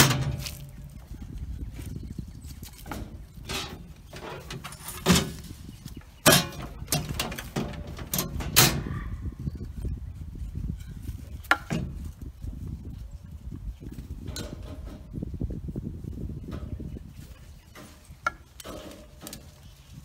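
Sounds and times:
metal feeders knocking and clanking: 0.0 - 1.0, 2.8 - 5.5, 6.2 - 9.0, 11.5 - 12.0, 14.2 - 15.2.

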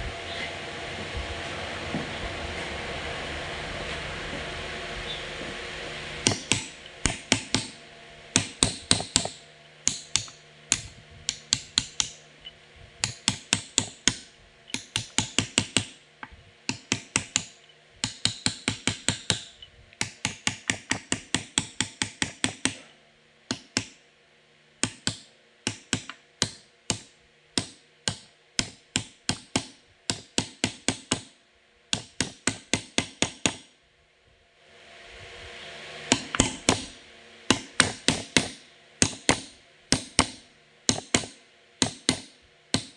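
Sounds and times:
sharp metallic taps: 37.5 - 42.9.

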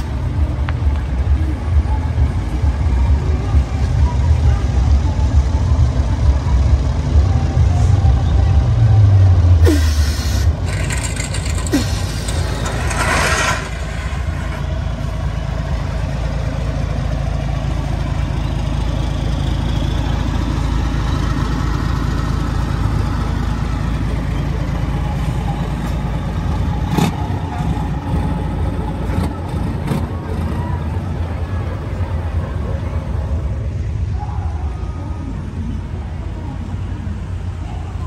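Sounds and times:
diesel truck engine idling: 0.0 - 38.0.

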